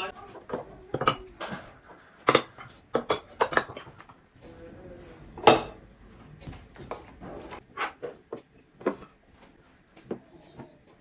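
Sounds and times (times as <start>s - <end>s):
plates and cutlery clattering: 0.0s - 4.2s.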